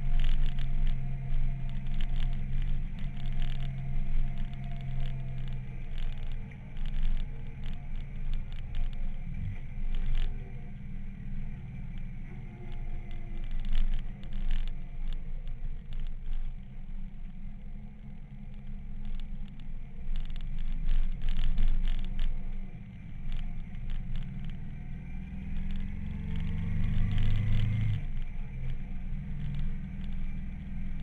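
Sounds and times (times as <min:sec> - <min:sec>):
crackles and scrapes: 0:00.0 - 0:31.0
motorcycle engine rumble: 0:00.0 - 0:31.0.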